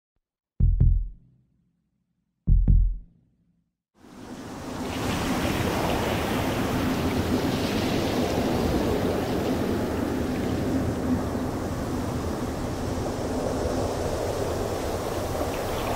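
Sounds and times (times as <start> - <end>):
deep booming thump: 0.6 - 1.3, 2.5 - 3.1.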